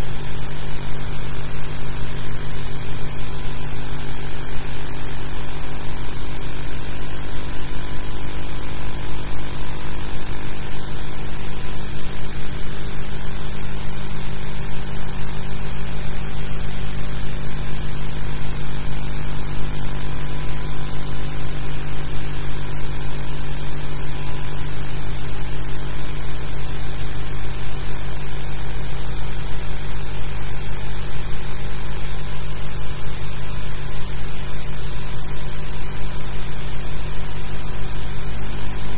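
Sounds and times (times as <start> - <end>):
electrical hum with hiss: 0.0 - 38.9.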